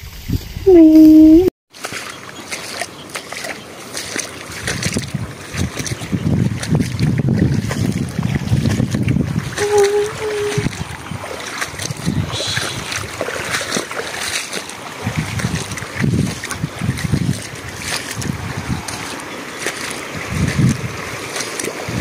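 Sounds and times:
footsteps splashing in water: 1.7 - 22.0
wind buffeting microphone: 4.4 - 22.0
short two-part hum: 9.6 - 10.7.

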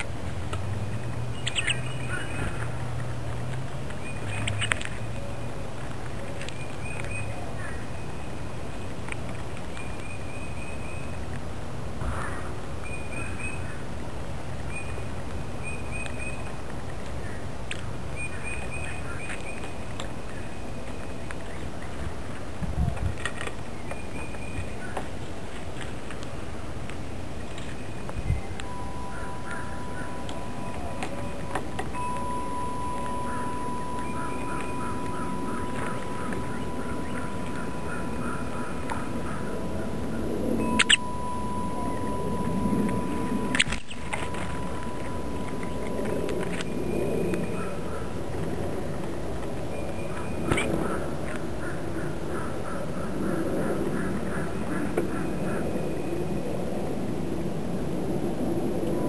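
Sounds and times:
birds pecking seed clicks: 0.0 - 11.5, 14.2 - 51.5
rustle: 0.0 - 59.0
high bird chirps: 1.3 - 2.6, 27.5 - 47.8
steady low rumble: 19.7 - 52.4.

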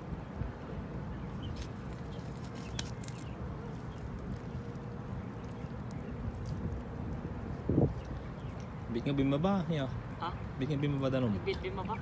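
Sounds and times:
wind buffeting microphone: 4.2 - 10.3.

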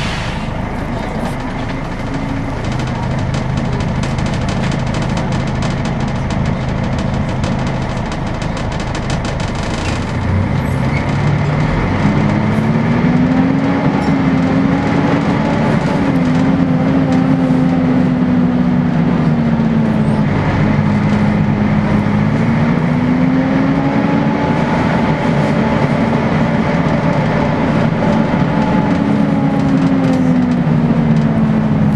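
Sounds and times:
bus engine droning: 0.0 - 31.9.

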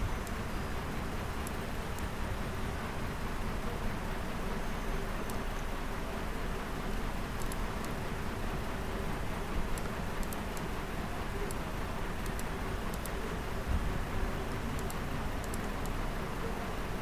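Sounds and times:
background hiss and low hum: 0.0 - 17.0
faint light clicks: 6.9 - 8.0.

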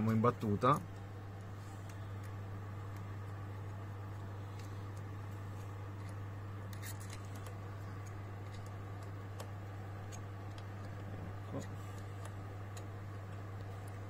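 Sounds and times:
steady low hum: 0.0 - 14.0
screwdriver scraping and clicking: 5.9 - 12.9.

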